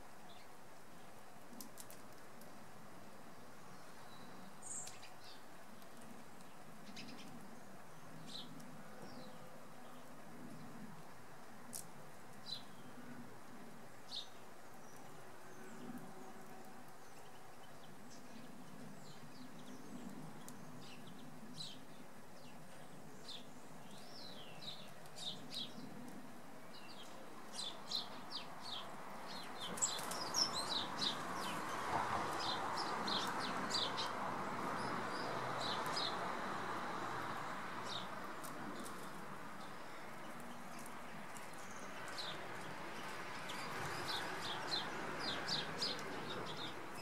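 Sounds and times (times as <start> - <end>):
songbirds chirping: 0.0 - 47.0.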